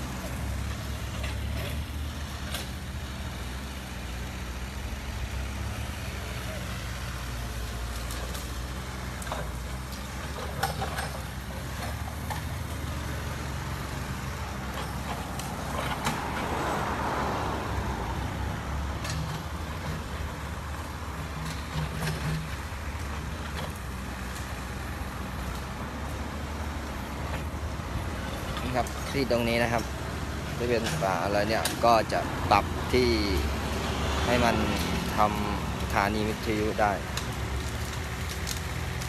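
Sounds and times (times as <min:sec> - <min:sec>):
excavator diesel engine: 0:00.0 - 0:39.0
rustling of branches: 0:07.0 - 0:39.0
branches cracking and knocking: 0:36.9 - 0:39.0.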